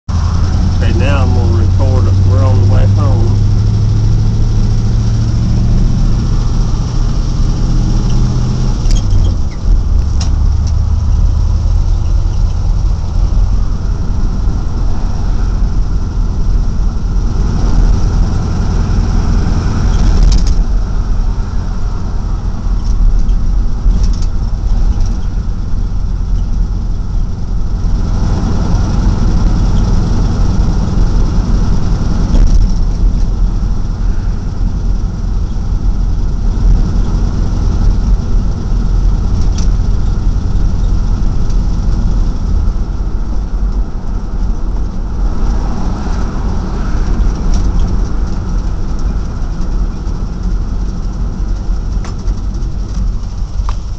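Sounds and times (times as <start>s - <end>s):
road and tyre noise: 0.0s - 53.9s
truck engine running: 0.0s - 53.9s.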